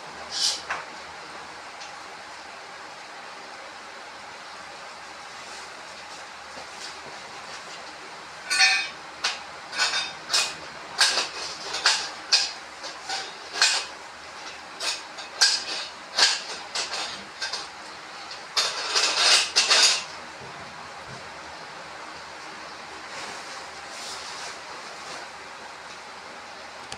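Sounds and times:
metal tent poles clanking: 0:08.4 - 0:09.0.

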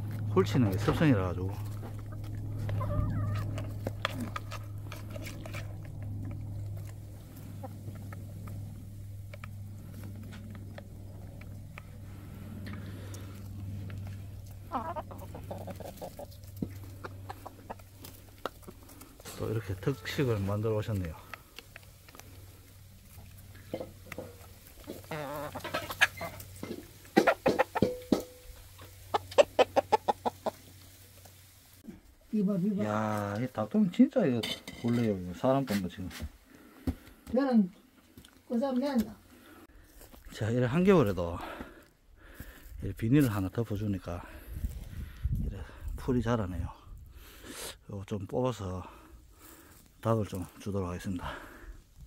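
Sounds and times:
steady low hum: 0:00.0 - 0:25.1
hens clucking: 0:00.0 - 0:31.6
hen call: 0:02.7 - 0:03.6.

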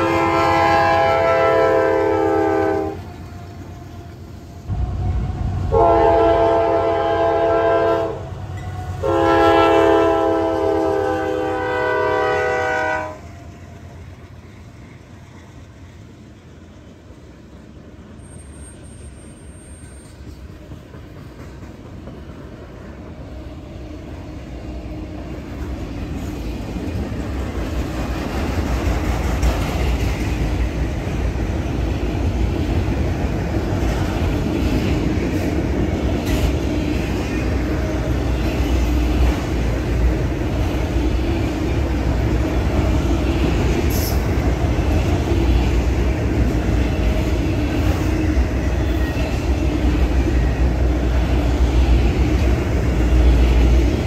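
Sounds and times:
steel wheels rolling on track: 0:25.0 - 0:54.0.

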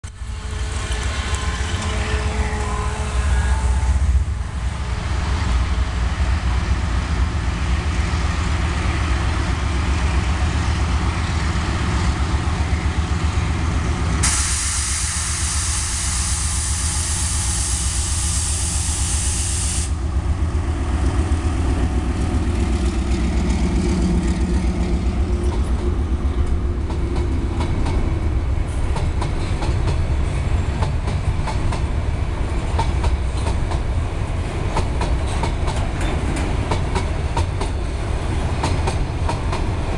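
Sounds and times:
diesel locomotive rumble: 0:00.0 - 0:39.9
loud hiss: 0:14.2 - 0:20.0.

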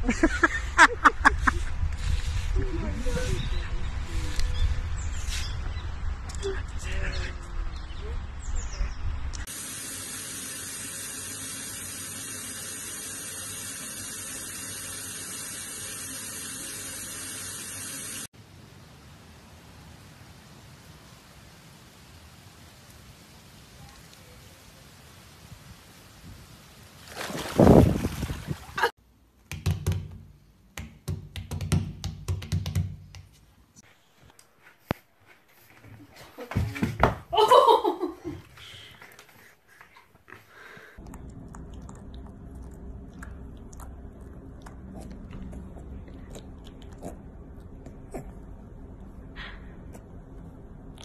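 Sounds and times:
faint steady hiss: 0:09.4 - 0:27.2
water running from bath tap: 0:09.5 - 0:18.3
dog splashing in water: 0:27.0 - 0:28.9.

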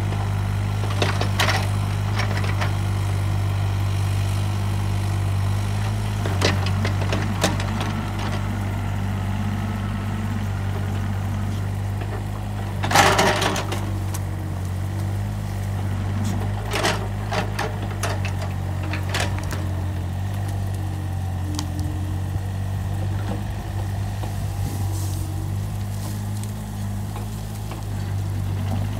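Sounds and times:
excavator diesel engine running: 0:00.0 - 0:28.9
excavator bucket knocking and cracking: 0:06.2 - 0:08.5, 0:11.9 - 0:14.3, 0:16.3 - 0:20.6.

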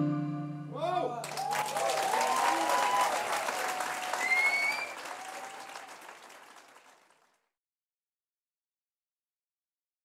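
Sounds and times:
audience applauding and cheering: 0:01.2 - 0:07.3.

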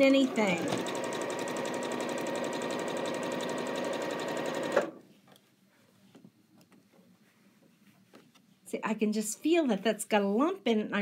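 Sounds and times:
sewing machine stitching: 0:00.0 - 0:05.0.

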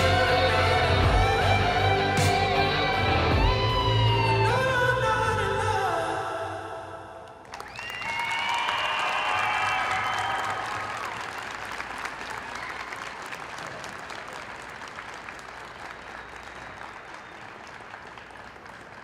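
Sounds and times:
small audience clapping: 0:07.4 - 0:19.0.

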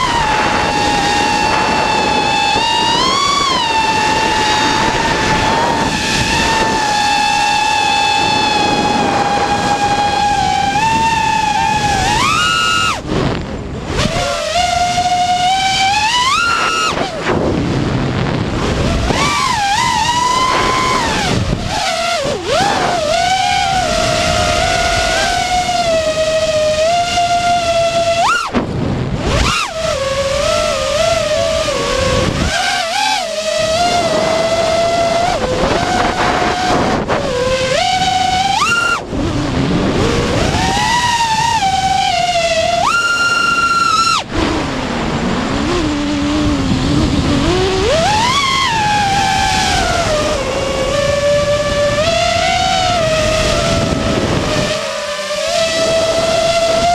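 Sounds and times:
quadcopter motors whining: 0:00.0 - 0:56.9.

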